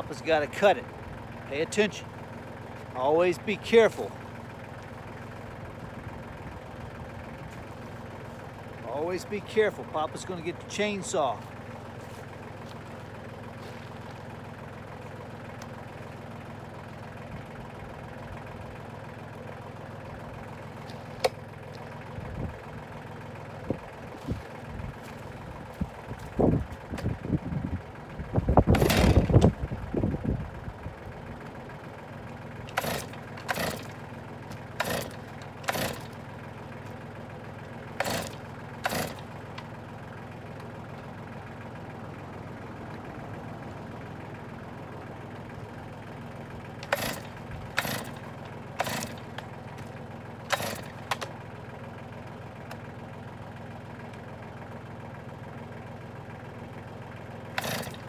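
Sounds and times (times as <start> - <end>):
tractor engine idling: 0.0 - 58.0
chainsaw starter cord rasps: 28.6 - 29.5, 32.6 - 36.3, 37.9 - 39.6, 46.7 - 51.3, 57.5 - 58.0.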